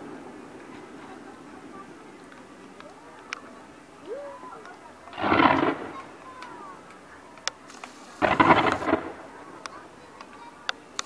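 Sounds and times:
fireworks crackling bursts: 4.1s - 11.0s
fireworks sharp pops: 5.1s - 11.0s.

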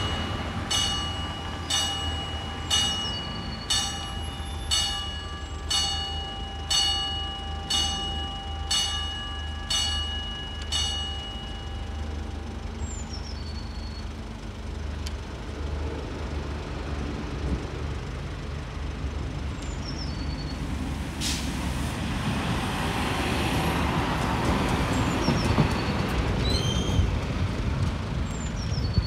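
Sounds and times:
diesel railcar humming: 0.0s - 29.0s
bird chirping: 12.8s - 14.1s.

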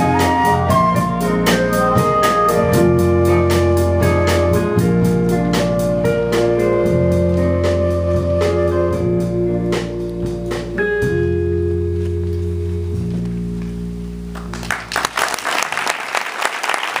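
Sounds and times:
jazz band playing: 0.0s - 15.1s
audience applause: 14.3s - 17.0s.

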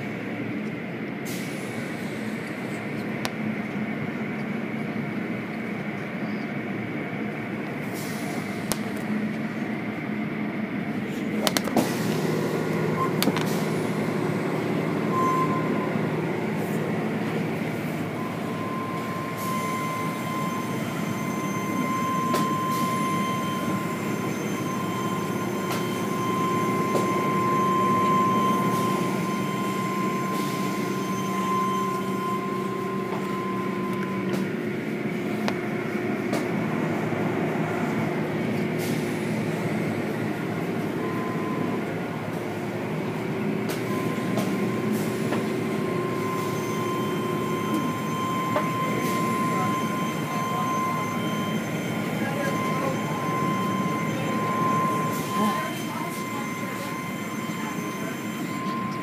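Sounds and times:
car wash machinery rumble: 0.0s - 59.0s
thin steady whine: 39.6s - 59.0s.

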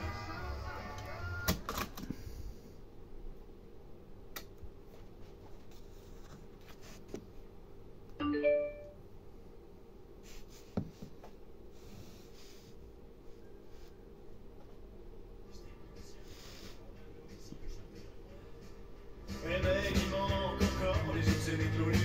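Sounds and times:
faint steady hum: 0.0s - 22.0s
electronic chime: 8.2s - 9.0s.

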